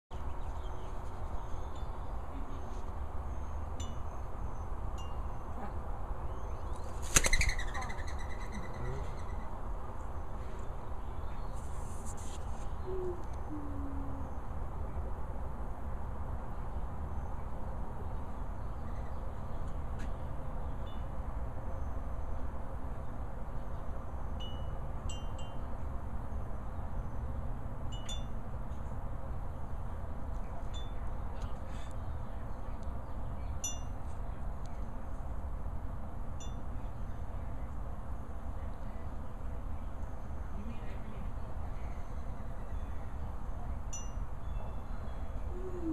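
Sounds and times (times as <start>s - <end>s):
faint bird chirps: 0.3s - 9.6s, 44.0s - 45.9s
dove wings clapping: 7.0s - 7.5s.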